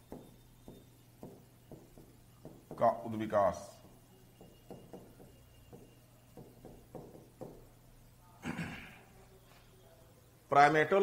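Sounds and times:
chalk tapping and scratching: 0.0s - 2.9s.

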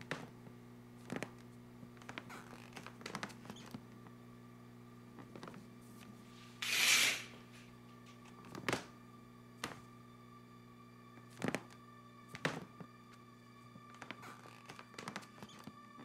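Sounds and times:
low room hum: 0.0s - 16.0s
footsteps on a hard floor: 2.0s - 3.8s, 7.4s - 9.0s, 9.6s - 10.0s, 11.2s - 13.0s, 13.7s - 16.0s
short rustling hiss: 6.3s - 7.7s.

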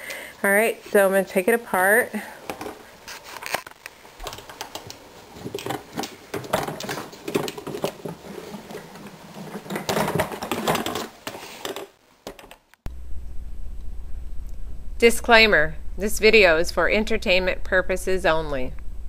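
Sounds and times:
plastic knocks clicks and rustling: 4.2s - 12.6s
steady low hum: 12.9s - 19.0s.

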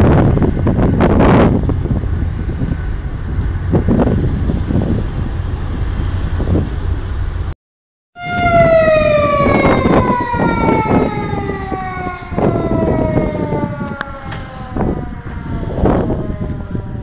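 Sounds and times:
wind rumble on microphone: 0.0s - 7.5s, 8.2s - 17.0s
siren winding down: 8.2s - 17.0s.

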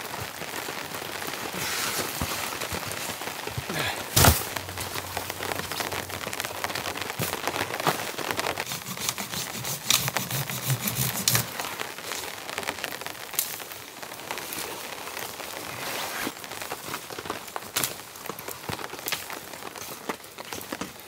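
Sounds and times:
rain pattering: 0.0s - 21.0s
branches dragged through twigs: 1.2s - 12.4s, 14.3s - 18.4s.

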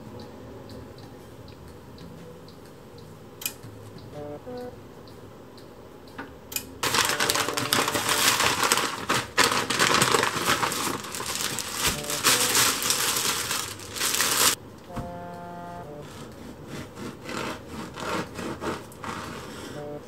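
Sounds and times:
shopping bag crinkling: 6.8s - 14.6s.

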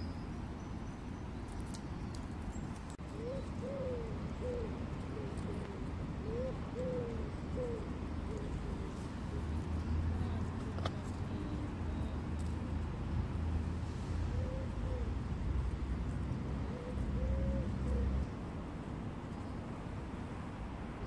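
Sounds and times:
pigeon cooing: 3.1s - 9.5s, 14.3s - 15.2s, 16.6s - 18.2s.

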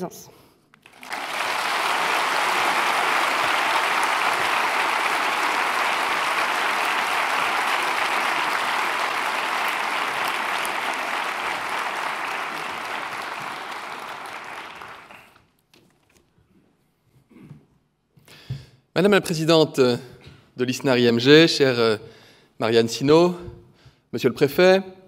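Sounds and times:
large audience applause: 0.8s - 15.4s.

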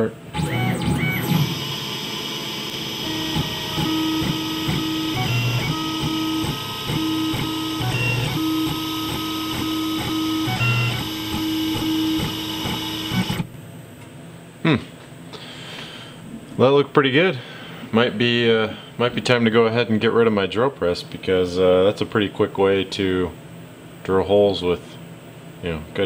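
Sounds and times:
mill spindle running: 0.0s - 13.5s
stepper motors whining: 0.0s - 13.5s.

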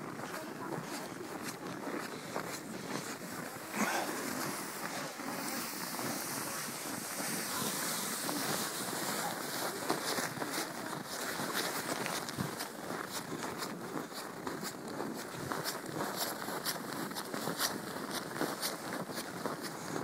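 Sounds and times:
footsteps crunching in snow: 0.0s - 20.0s
steady rushing noise: 3.5s - 12.7s.

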